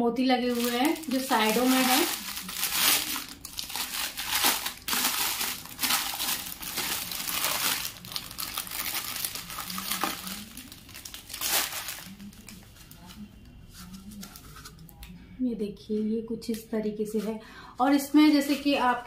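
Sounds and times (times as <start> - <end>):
plastic packaging crinkling: 0.4 - 13.2.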